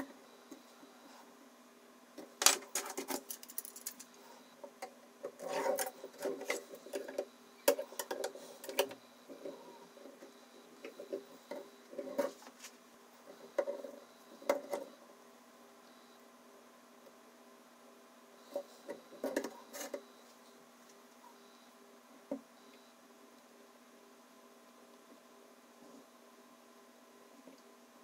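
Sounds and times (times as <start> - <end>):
metal parts clicking and scraping: 2.4 - 4.1.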